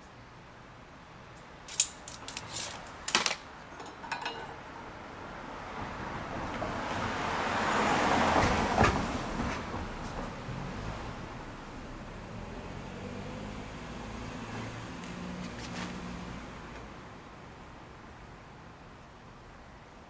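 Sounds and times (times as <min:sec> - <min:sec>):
tape measure clicks and rattles: 0:01.7 - 0:04.3
passing vehicle: 0:05.0 - 0:17.0.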